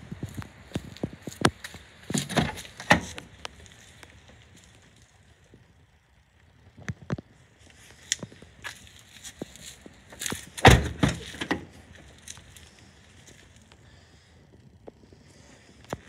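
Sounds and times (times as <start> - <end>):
car door clunks: 10.6 - 11.6.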